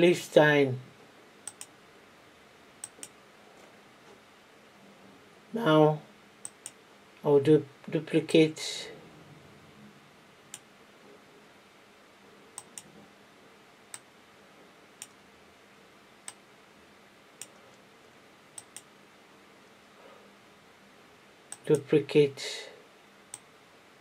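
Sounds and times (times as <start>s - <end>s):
computer mouse clicking: 1.4s - 1.7s, 2.8s - 3.2s, 6.4s - 6.8s, 12.6s - 12.9s, 18.6s - 18.9s.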